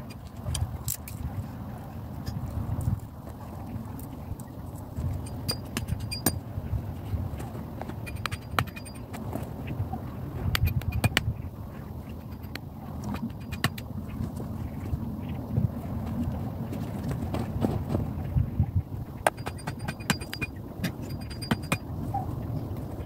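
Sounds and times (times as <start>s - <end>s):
wind rumble on microphone: 0.0s - 23.0s
hatchet striking wooden stake: 5.3s - 6.4s, 7.9s - 9.2s, 10.5s - 11.3s, 12.2s - 13.8s, 19.2s - 21.8s.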